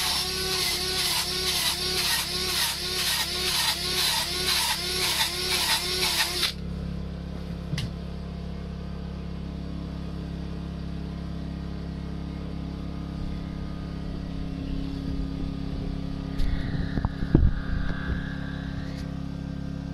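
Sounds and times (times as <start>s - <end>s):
drill brush scrubbing wood: 0.0s - 6.6s
low drone: 13.2s - 19.9s.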